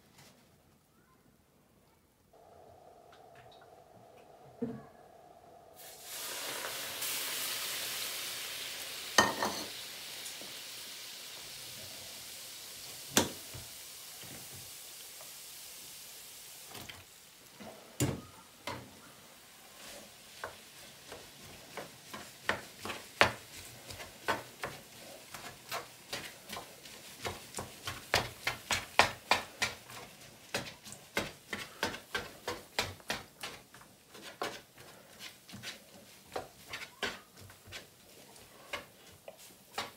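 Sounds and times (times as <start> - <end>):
liquid sizzling in hot pan: 5.7 - 39.9
pans and utensils clanking: 9.2 - 9.8.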